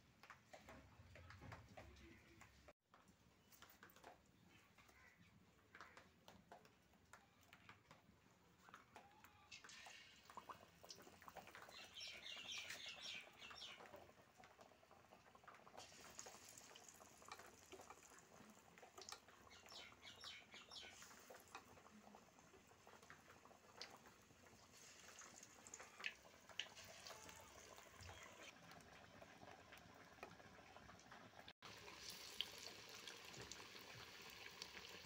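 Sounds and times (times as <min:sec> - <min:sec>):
deep-frying sizzling and crackling: 0:15.4 - 0:19.3, 0:29.6 - 0:35.0.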